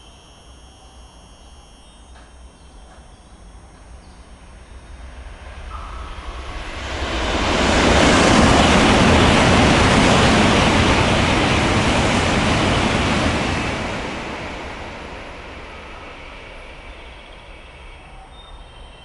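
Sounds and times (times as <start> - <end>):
train passing at speed: 0.0 - 19.0.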